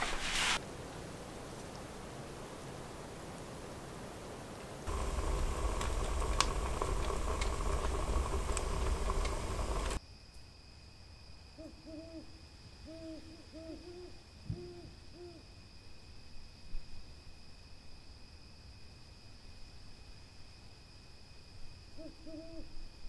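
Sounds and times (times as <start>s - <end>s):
hiss with crackling clicks: 4.6s - 10.0s
owl hooting: 11.6s - 12.3s, 12.9s - 15.4s, 22.0s - 22.6s.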